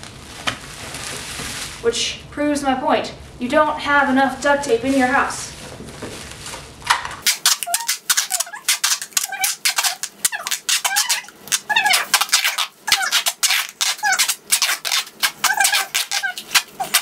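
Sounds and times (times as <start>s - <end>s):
duct tape ripping: 6.9s - 17.0s
tape squeaks: 7.2s - 17.0s.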